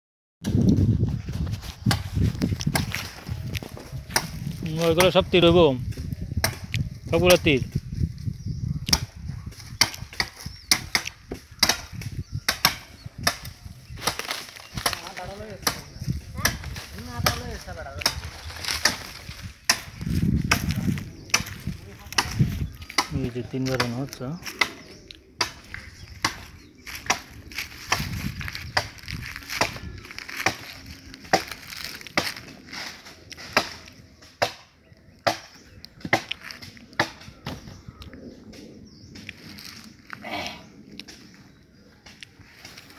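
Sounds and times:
machete chopping into logs: 8.9s - 9.2s, 9.8s - 17.4s, 31.3s - 37.6s.

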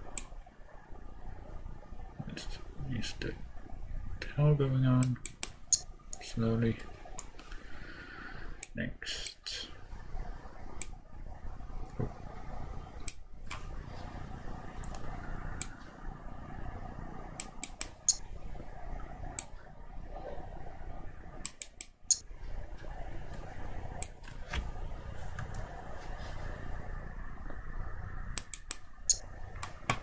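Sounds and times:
computer mouse clicking: 0.0s - 0.4s, 5.0s - 6.2s, 10.8s - 11.0s, 13.0s - 13.7s, 14.8s - 15.8s, 17.4s - 18.2s, 21.4s - 22.2s, 28.3s - 30.0s
steady low hum: 0.0s - 30.0s.

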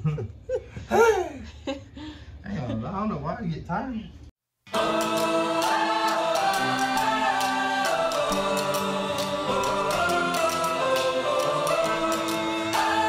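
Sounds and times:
music of held chords: 4.7s - 13.0s.

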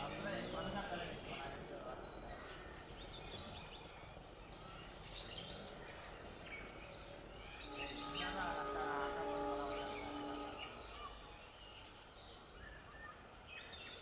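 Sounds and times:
birds chirping: 0.0s - 14.0s
outdoor background hiss: 0.0s - 14.0s
steady pitched tone: 7.7s - 11.2s.

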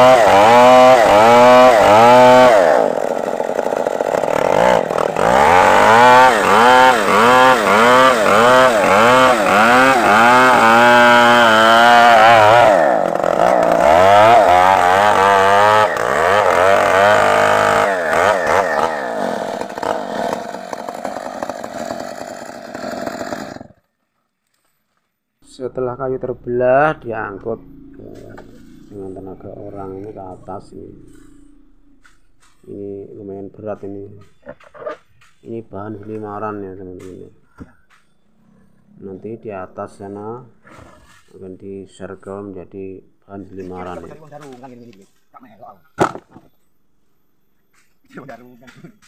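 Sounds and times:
chainsaw cutting timber: 0.0s - 23.9s.

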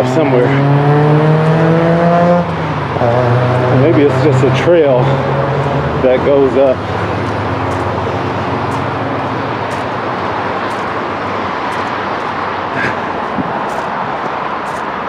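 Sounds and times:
loud steady rushing noise: 0.0s - 15.0s
footsteps on dirt trail: 6.8s - 15.0s.

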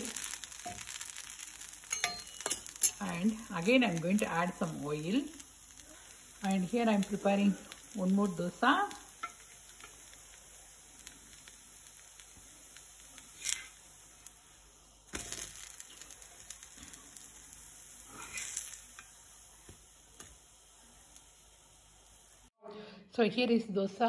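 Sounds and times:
batter sizzling on a hot pan: 0.0s - 22.6s
utensil scraping a pan: 13.2s - 13.8s, 18.1s - 19.1s.

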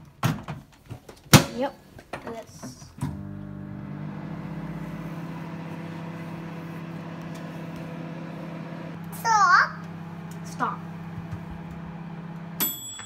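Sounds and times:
microwave oven humming: 3.0s - 13.0s.

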